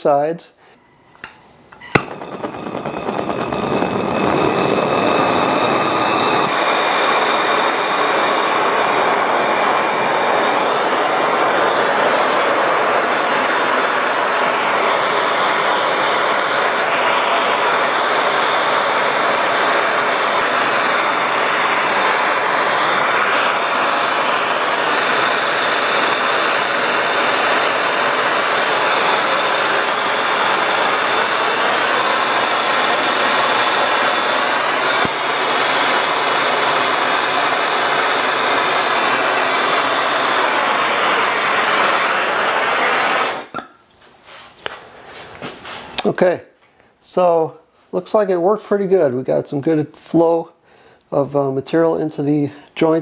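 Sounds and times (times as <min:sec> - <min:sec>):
torch flame hissing: 0:00.6 - 0:43.7
gas torch igniter click: 0:01.1 - 0:07.9, 0:33.9 - 0:38.4, 0:39.0 - 0:43.7.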